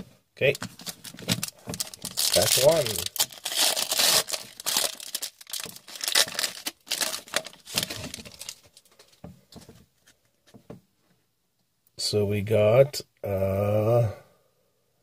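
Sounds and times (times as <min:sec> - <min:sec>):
foil wrapper tearing and crinkling: 0:00.8 - 0:08.9.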